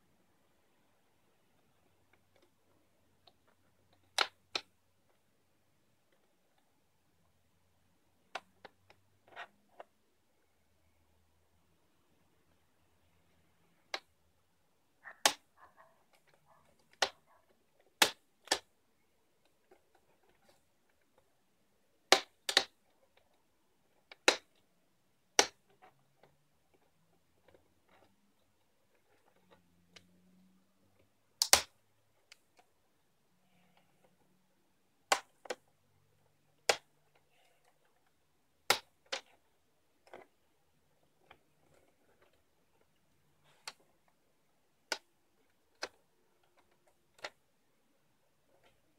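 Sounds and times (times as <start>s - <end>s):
plastic clips snapping loose: 31.4s - 32.4s.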